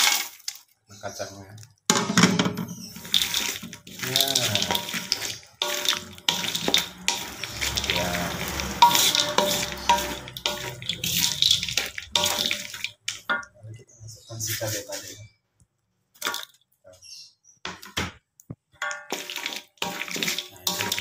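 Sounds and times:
spatula stirring food in a wok: 0.0 - 0.7, 2.7 - 13.6, 18.6 - 21.0
wet mixing and scraping: 0.0 - 1.8, 2.7 - 15.2, 16.1 - 16.8, 17.8 - 21.0.

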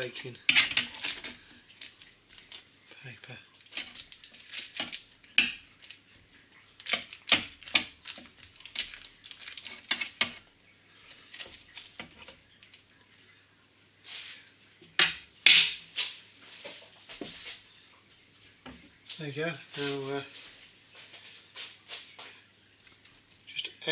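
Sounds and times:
spatula scraping metal baking tray: 0.5 - 1.3.

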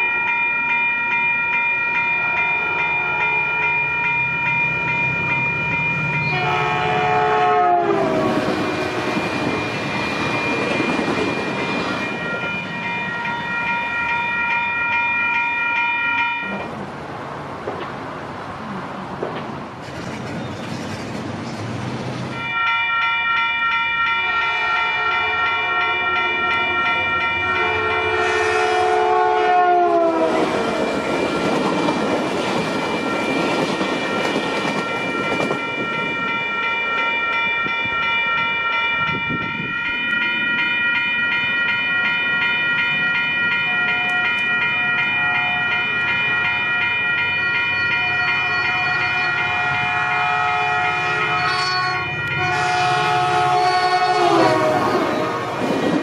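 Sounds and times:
crossing bell ringing: 0.0 - 16.8, 22.3 - 56.0
train rumbling past: 0.0 - 56.0
train horn: 2.2 - 3.6, 6.2 - 10.1, 22.4 - 31.1, 48.4 - 55.8.

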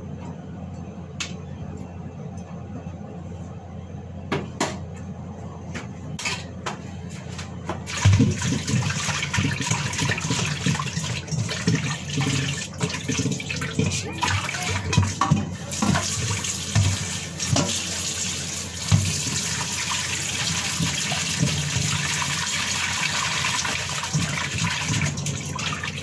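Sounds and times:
tap water splashing into sink: 7.8 - 18.0, 18.8 - 26.0.

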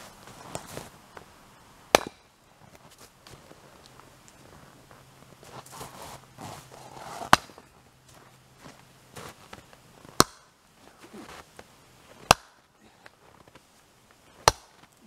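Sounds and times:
footsteps in snow: 0.0 - 1.0, 2.6 - 10.1
axe splitting firewood: 1.9 - 2.4, 6.8 - 7.7, 10.1 - 11.4, 12.1 - 13.5, 14.3 - 15.0.

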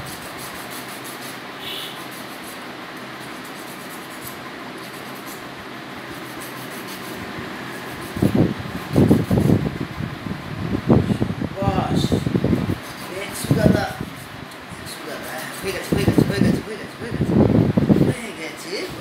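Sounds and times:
fan whirring: 0.0 - 19.0
person's voice: 11.6 - 12.3, 13.1 - 14.1, 14.8 - 17.4, 18.0 - 19.0.

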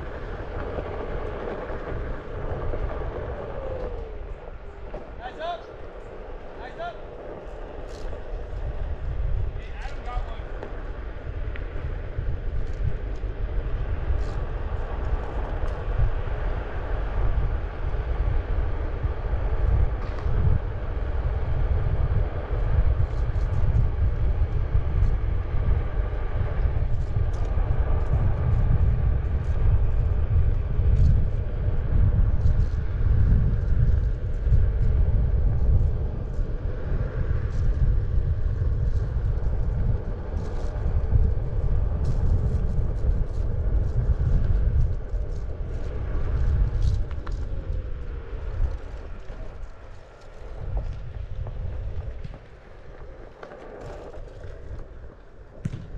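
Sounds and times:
wheels rolling over asphalt: 0.0 - 55.9
wind buffeting microphone: 0.0 - 55.9
small ticks: 42.0 - 47.7.

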